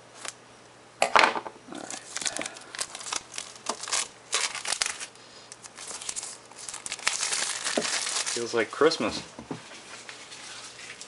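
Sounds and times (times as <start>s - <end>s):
plastic shrink wrap crinkling: 1.7s - 9.1s.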